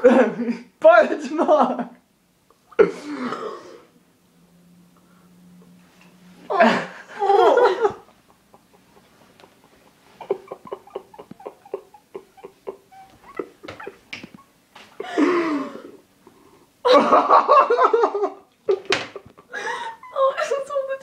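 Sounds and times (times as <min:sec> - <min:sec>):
woman laughing: 0:06.5 - 0:16.0, 0:16.9 - 0:21.0
small knocks and clicks: 0:13.6 - 0:14.9.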